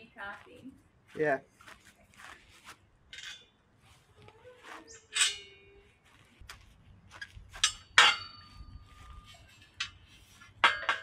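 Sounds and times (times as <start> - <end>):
metal clinks and knocks: 7.1 - 11.0
sharp metal strikes ringing: 7.6 - 9.0.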